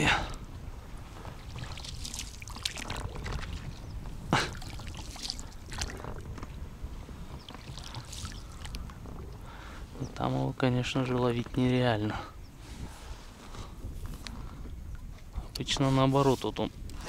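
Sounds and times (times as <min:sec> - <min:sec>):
oars splashing in water: 0:01.0 - 0:09.5.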